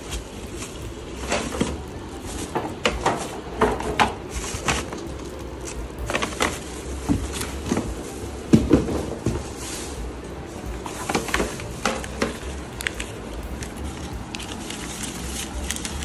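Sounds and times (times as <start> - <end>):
plastic parts knocking and clicking: 10.9 - 16.0.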